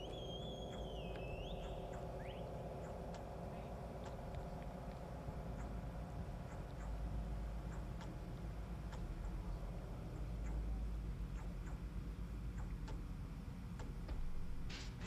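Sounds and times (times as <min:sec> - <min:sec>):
high whistling tone sliding up: 0:00.0 - 0:02.8
rising chirp: 0:00.0 - 0:04.6
low hum: 0:00.0 - 0:15.0
faint ticks: 0:04.0 - 0:14.2.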